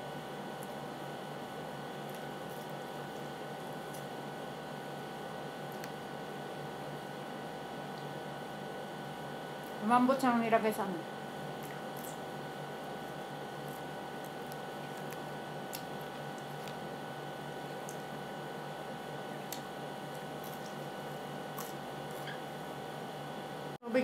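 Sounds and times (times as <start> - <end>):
electrical hum and hiss: 0.0 - 24.0
wet chewing mouth sounds: 2.0 - 4.1, 11.5 - 12.3, 12.9 - 16.9, 19.4 - 22.4.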